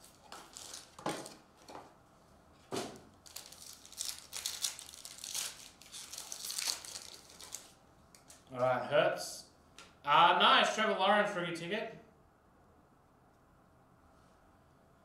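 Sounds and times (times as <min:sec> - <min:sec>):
foil wrapper crinkling and tearing: 0:00.0 - 0:01.4, 0:03.2 - 0:08.5.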